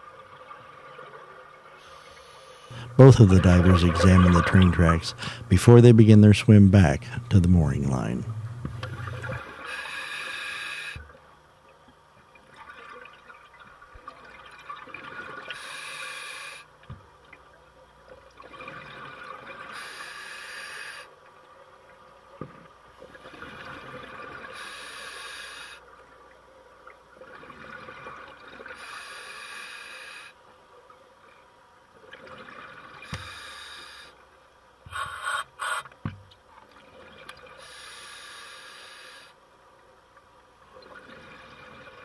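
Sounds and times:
rush of exhaled bubbles: 2.7 - 5.6
hissing regulator inhalation: 34.9 - 35.9, 37.6 - 39.4.

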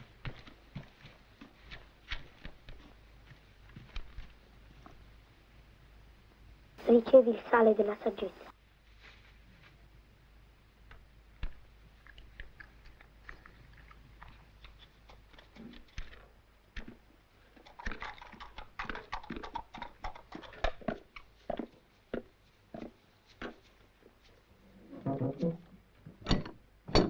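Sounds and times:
hooves on dirt and leaves: 0.0 - 5.1, 20.8 - 24.5
footsteps on dry leaves: 8.9 - 9.7.

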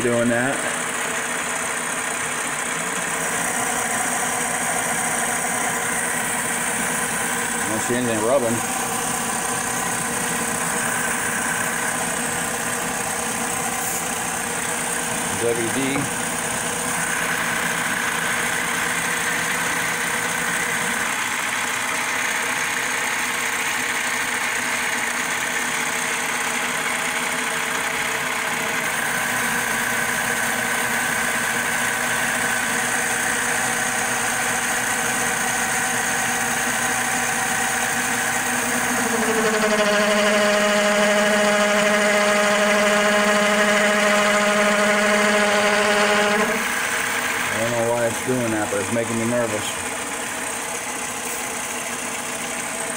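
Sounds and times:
lathe hum and whine: 0.0 - 52.9
metal cutting: 3.0 - 21.2, 33.6 - 50.1.

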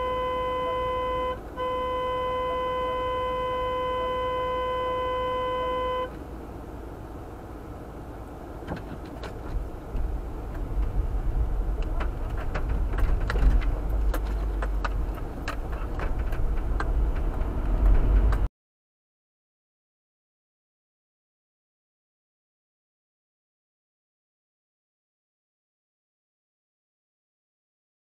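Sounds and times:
car horn blast: 0.0 - 6.2
car engine running: 0.0 - 18.5.

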